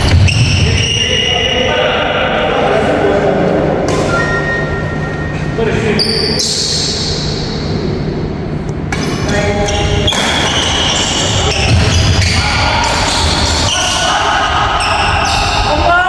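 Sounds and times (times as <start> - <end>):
shoes squeaking: 9.2 - 14.1.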